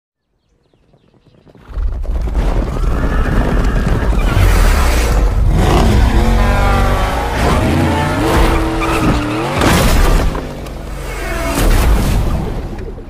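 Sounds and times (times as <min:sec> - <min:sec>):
horses galloping: 0:00.3 - 0:08.4
horse whinnying: 0:02.6 - 0:04.7.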